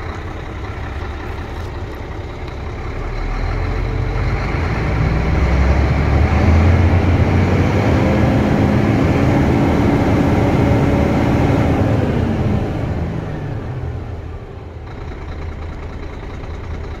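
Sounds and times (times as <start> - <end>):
diesel truck engine revving: 0.0 - 17.0.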